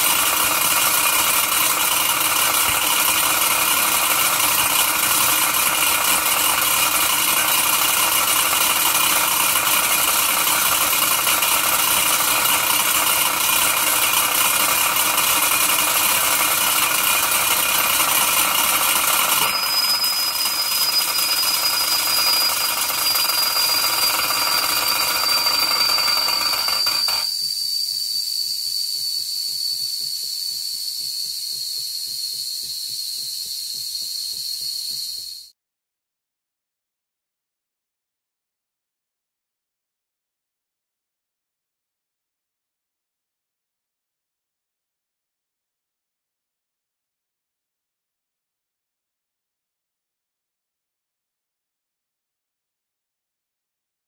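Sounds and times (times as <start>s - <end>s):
model steam engine hissing: 0.0s - 35.5s
steam whistle high note: 7.8s - 35.5s.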